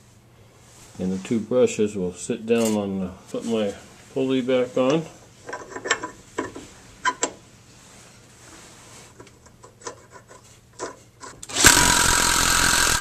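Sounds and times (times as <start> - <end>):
metal clicks and rubbing: 9.1 - 11.4.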